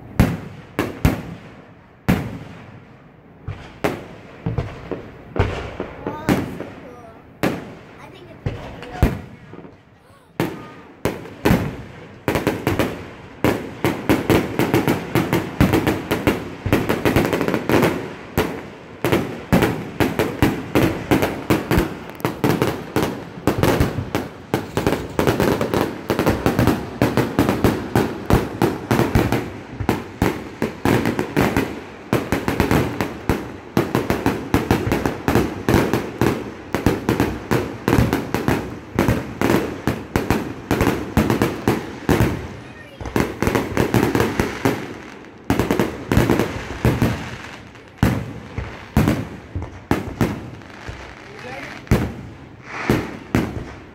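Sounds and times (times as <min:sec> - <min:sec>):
firework shells bursting: 0:13.6 - 0:53.9.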